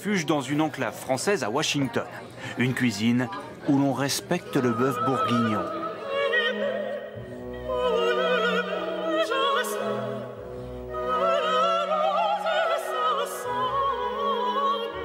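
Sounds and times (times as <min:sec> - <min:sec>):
operatic singing with vibrato: 0:04.2 - 0:15.0.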